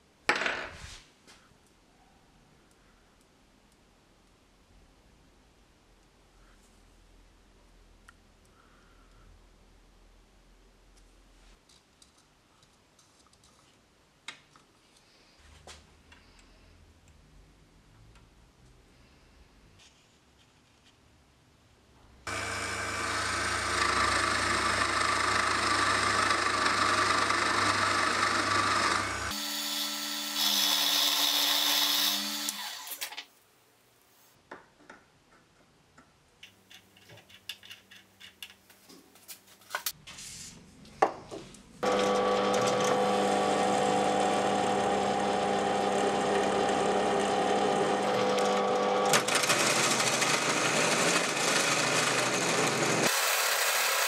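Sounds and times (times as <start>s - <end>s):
drill press drilling steel: 22.3s - 33.0s, 41.8s - 54.0s
power tools running: 22.3s - 33.2s, 41.8s - 54.0s.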